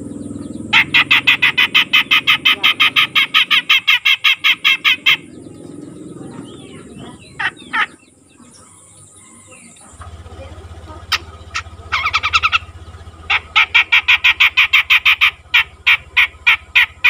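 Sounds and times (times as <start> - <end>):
short sharp bird calls: 0.3 - 5.4, 11.0 - 17.0.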